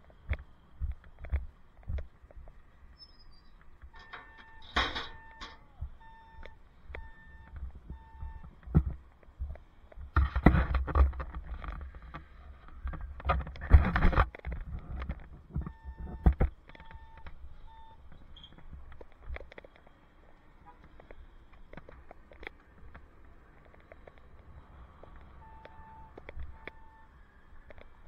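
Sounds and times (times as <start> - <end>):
bicycle bumps and rattles: 3.5 - 6.0, 7.6 - 17.4
short electronic beeps: 3.9 - 8.5, 15.7 - 18.5, 25.4 - 27.2.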